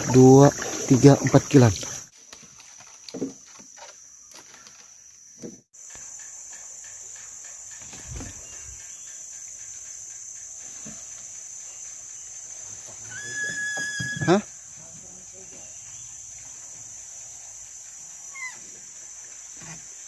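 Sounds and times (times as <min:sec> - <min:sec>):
insects buzzing: 0:00.0 - 0:20.0.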